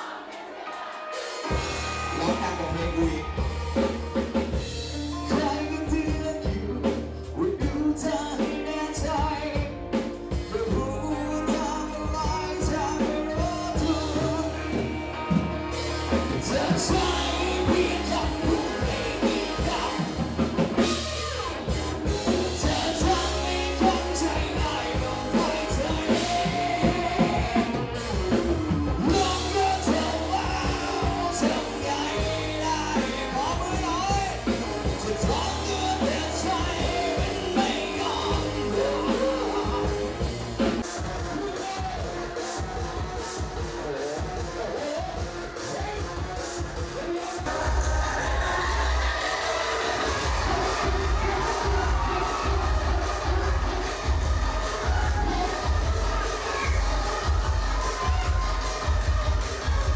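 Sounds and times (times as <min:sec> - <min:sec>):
rock music with drums: 0:00.0 - 0:59.9
man singing into microphone: 0:05.1 - 0:15.1, 0:16.2 - 0:20.9, 0:22.3 - 0:28.4, 0:29.0 - 0:42.8.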